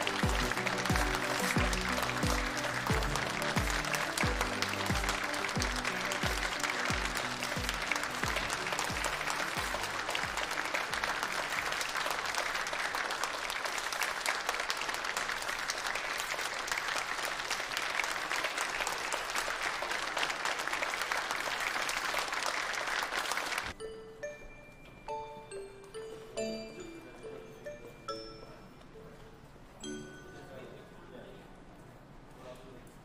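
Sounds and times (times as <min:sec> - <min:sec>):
audience applauding: 0:00.0 - 0:23.8.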